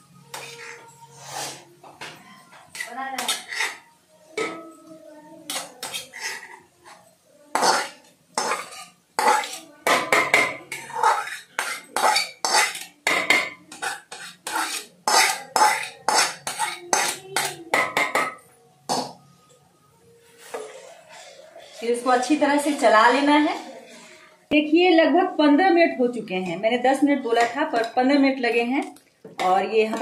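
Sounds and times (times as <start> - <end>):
spoon scraping metal pan: 0.2 - 1.6, 2.3 - 4.6, 5.5 - 19.2, 20.4 - 24.3.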